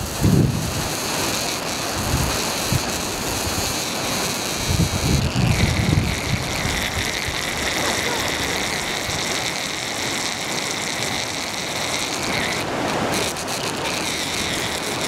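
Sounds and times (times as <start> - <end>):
wind buffeting microphone: 0.0 - 1.1, 1.9 - 9.4
steady rushing hiss: 0.0 - 15.0.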